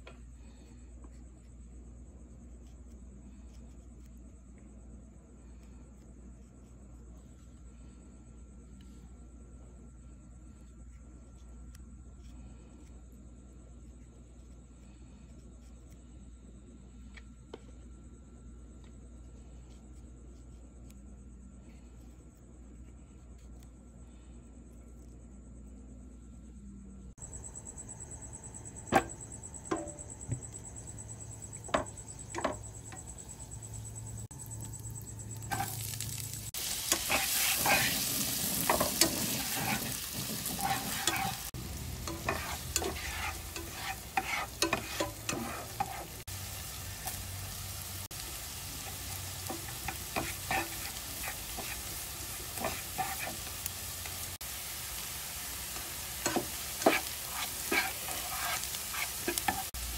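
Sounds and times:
onion sizzling in a pan: 0:27.2 - 0:59.9
spatula scraping and tapping pan: 0:31.6 - 0:33.2, 0:35.5 - 0:46.2, 0:48.8 - 0:54.2, 0:55.8 - 0:59.8.

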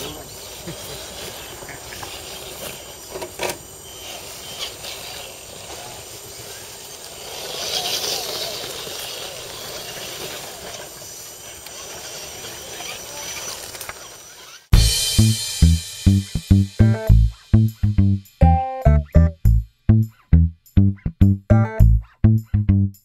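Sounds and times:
rc truck motors whining: 0:00.0 - 0:14.7.

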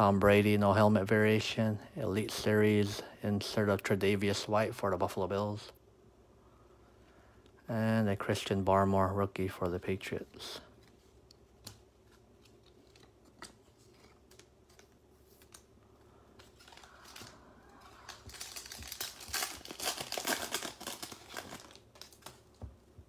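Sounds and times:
foil wrapper crinkling and tearing: 0:16.4 - 0:22.6.

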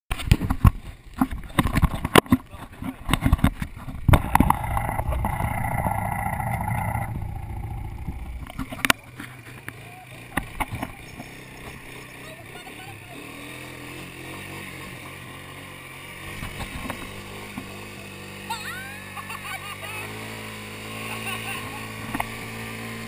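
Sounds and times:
knocks and bumps on camera: 0:00.1 - 0:05.4
quad bike engine running: 0:00.1 - 0:23.0.

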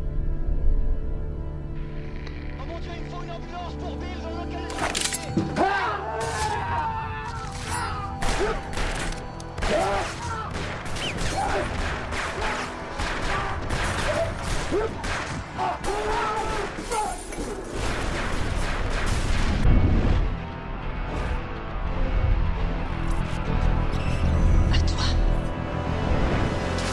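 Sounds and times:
action film music: 0:00.0 - 0:26.9
gunshots: 0:08.2 - 0:19.9.

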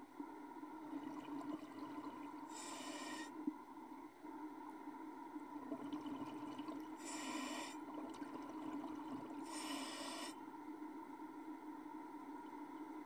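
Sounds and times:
regulator hissing breaths: 0:02.5 - 0:03.3, 0:07.0 - 0:07.9, 0:09.4 - 0:10.4.

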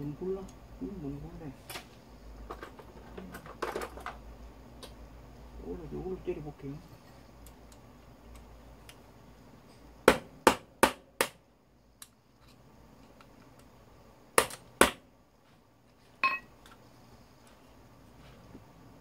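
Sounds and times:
metallic ring: 0:16.2 - 0:16.5.

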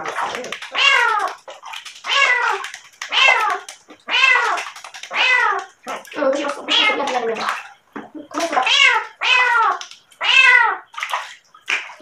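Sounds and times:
cat meowing loudly: 0:08.6 - 0:10.8.

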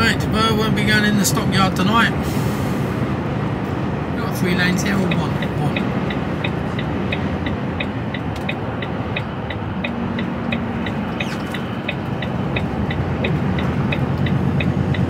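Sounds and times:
diesel engine drone: 0:00.0 - 0:15.0
turn indicator ticking: 0:04.6 - 0:15.0.

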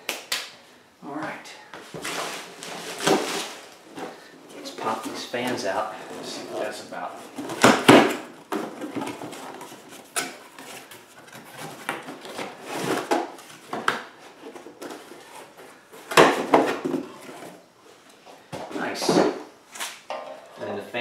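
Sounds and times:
cardboard and packing rustling: 0:01.8 - 0:20.0.

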